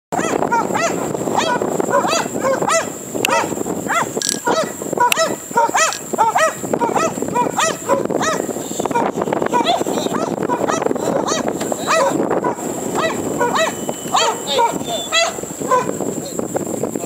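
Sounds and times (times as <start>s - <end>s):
dogs barking excitedly: 0.1s - 16.1s.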